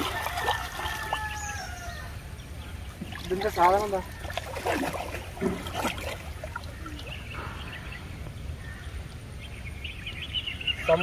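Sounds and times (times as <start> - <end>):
rustling or splashing strokes: 0.0 - 1.4, 2.9 - 7.1.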